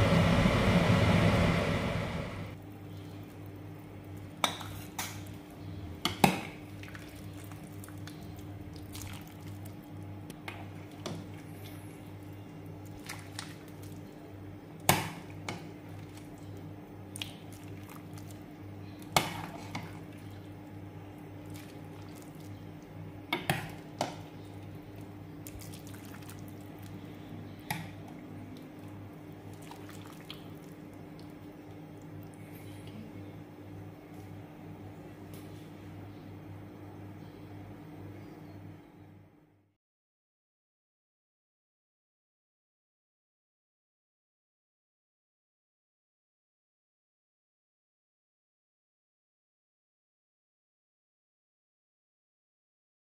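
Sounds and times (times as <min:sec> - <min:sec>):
low steady hum: 0:00.0 - 0:04.4, 0:15.4 - 0:39.6.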